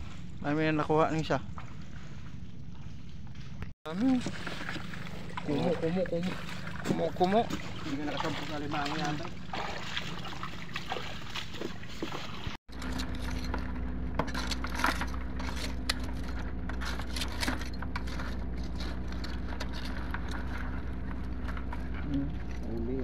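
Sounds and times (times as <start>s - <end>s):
steady low hum: 0.0s - 23.0s
crabs clicking and scraping: 12.7s - 23.0s.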